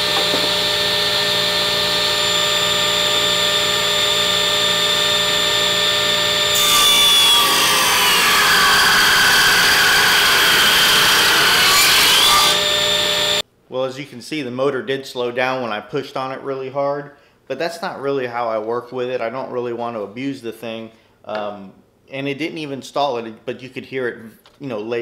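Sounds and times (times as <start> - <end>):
saw cutting wood: 0.0 - 13.4
table saw whining: 0.0 - 13.4.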